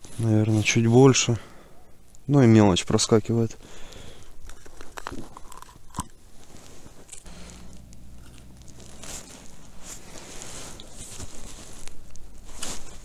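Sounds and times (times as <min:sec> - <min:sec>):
rustling and crunching handling noise: 0:00.0 - 0:13.0
short scraping rustles: 0:06.4 - 0:13.0.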